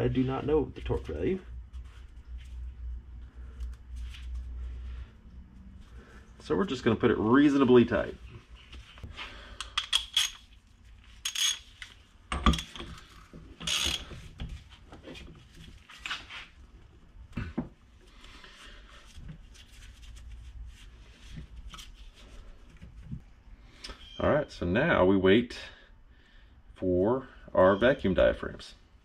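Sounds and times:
metal tools clinking on workbench: 11.2s - 11.7s.

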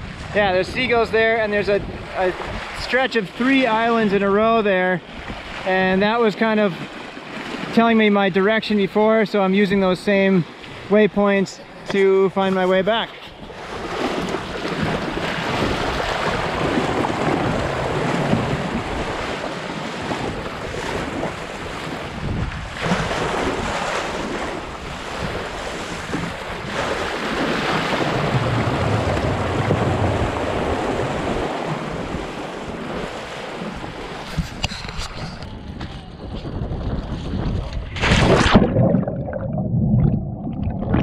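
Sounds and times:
wind buffeting the microphone: 0.0s - 2.9s, 13.3s - 41.0s
water splashing along a hull: 0.0s - 41.0s.

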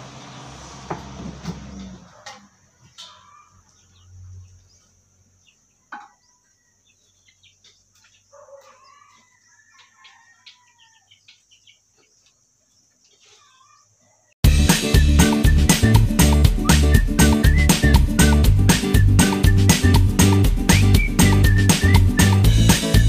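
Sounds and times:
chickens calling: 1.7s - 14.4s
rooster crowing: 8.4s - 11.2s.

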